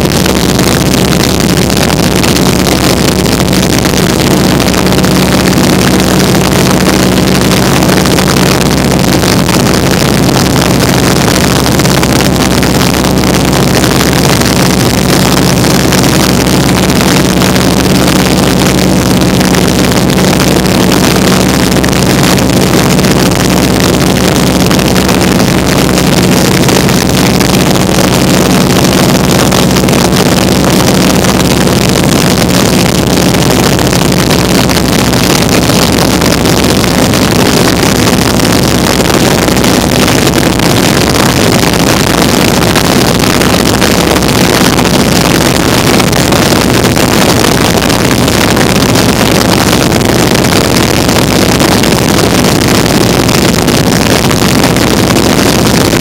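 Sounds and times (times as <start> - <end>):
biplane engine and propeller drone: 0.0 - 56.0.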